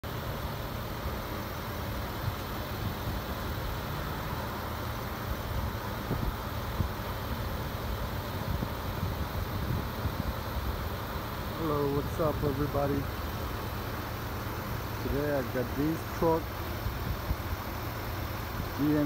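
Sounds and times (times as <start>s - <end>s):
pickup engine idling: 0.0s - 19.0s.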